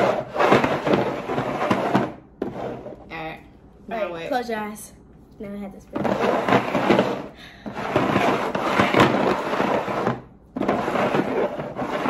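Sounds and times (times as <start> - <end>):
bowls rattling and scraping on table: 0.0 - 3.3, 5.9 - 12.0.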